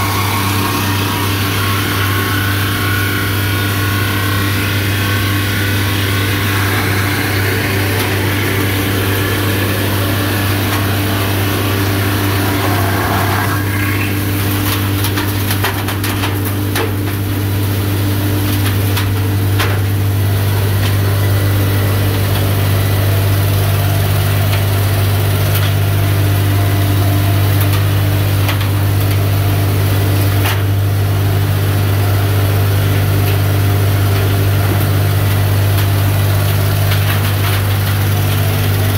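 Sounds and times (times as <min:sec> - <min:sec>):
rasping wood cutting: 0:00.0 - 0:14.7
milling machine motor hum: 0:00.0 - 0:15.9.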